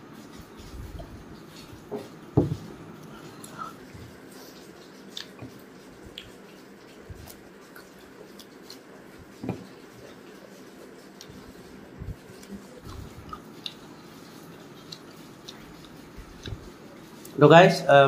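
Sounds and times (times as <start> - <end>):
eating sounds with hands: 0.2 - 17.4
glass thumping on table: 1.9 - 2.6.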